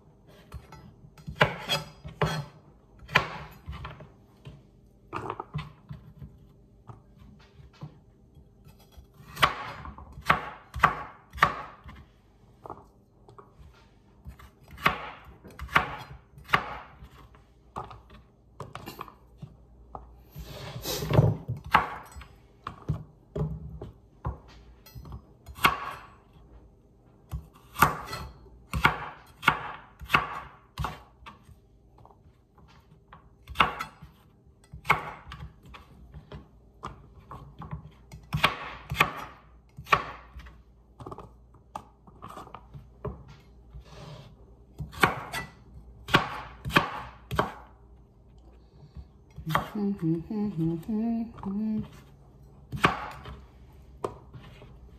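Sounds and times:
knife chopping carrots on board: 0.3s - 4.5s, 8.7s - 12.8s, 14.2s - 26.1s, 27.2s - 31.6s, 32.6s - 47.7s, 49.3s - 50.0s, 52.7s - 53.4s.

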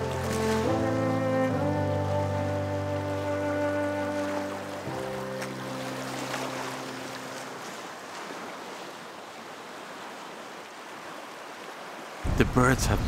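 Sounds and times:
background music: 0.0s - 7.6s
sea water washing against rocks: 3.3s - 12.8s.

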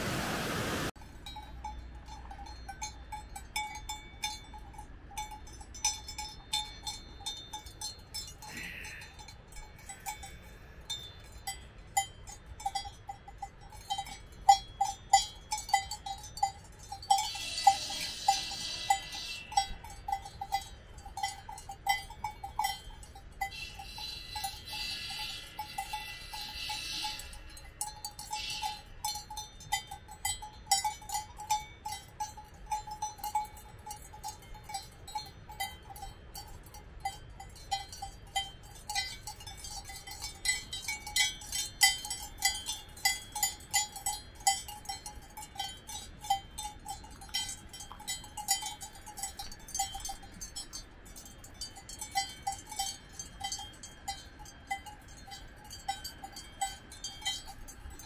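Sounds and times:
high hiss: 0.0s - 0.9s
cowbells clanking: 1.0s - 58.0s.

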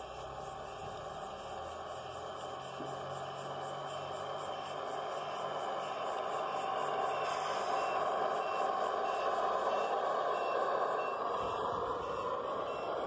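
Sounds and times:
high electronic reversing beep: 3.0s - 13.0s.

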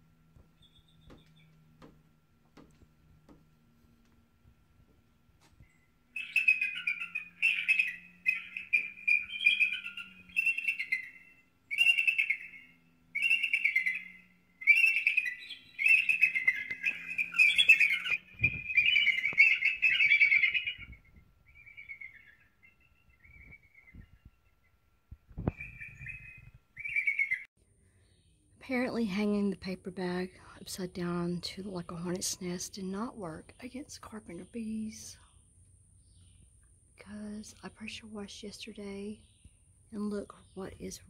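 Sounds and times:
harsh bird calls from speaker: 6.0s - 24.2s, 25.4s - 27.5s.

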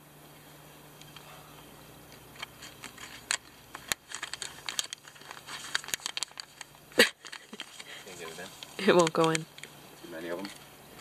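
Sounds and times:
paper envelope rustling: 2.3s - 11.0s.

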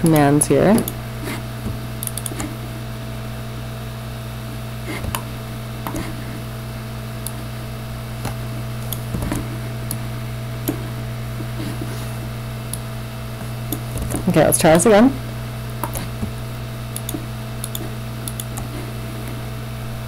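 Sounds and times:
steady low hum with tones: 0.0s - 20.0s
computer mouse clicks: 1.7s - 2.5s, 4.9s - 6.2s, 10.6s - 10.8s, 15.8s - 18.7s.

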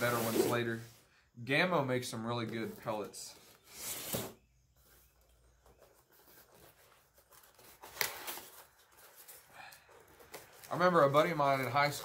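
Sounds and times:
cardboard box rubbing and scraping: 0.0s - 0.8s.

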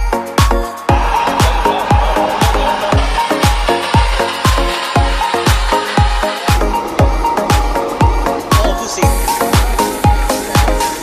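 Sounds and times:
electronic dance music: 0.4s - 11.0s.

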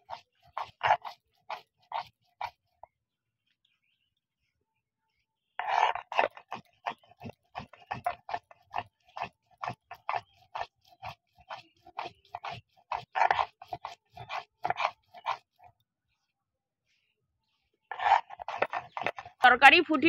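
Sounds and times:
stone pestle grinding on stone: 0.0s - 2.6s, 5.6s - 15.7s, 17.9s - 19.6s.

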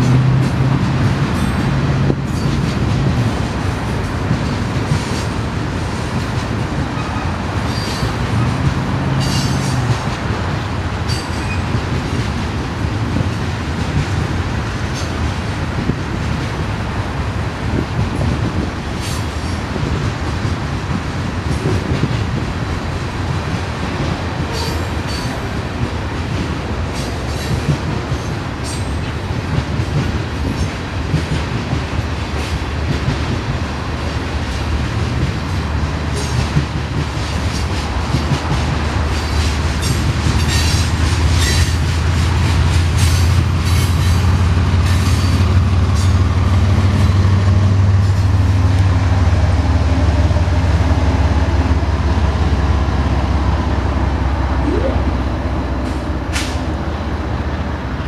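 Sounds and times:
train wheels clacking and squealing: 0.0s - 16.6s, 17.7s - 49.4s, 55.8s - 56.8s
diesel locomotive engines droning: 0.0s - 58.0s.

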